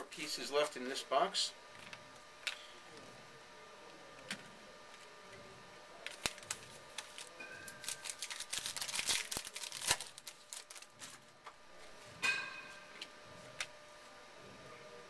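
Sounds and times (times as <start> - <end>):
wrapper tearing and crinkling: 6.0 - 11.2.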